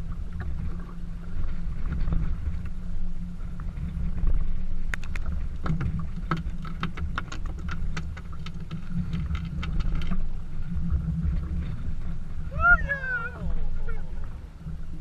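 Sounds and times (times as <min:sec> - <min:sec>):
steady low rumble: 0:00.0 - 0:15.0
water slapping against boat hull: 0:03.6 - 0:14.1.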